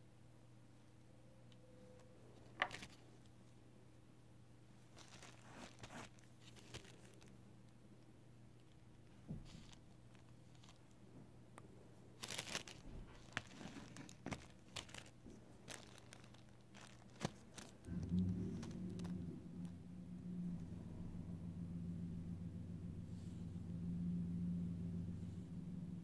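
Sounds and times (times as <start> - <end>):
low steady hum: 0.0 - 26.0
small clicks and crinkles: 1.5 - 3.6, 4.9 - 19.8.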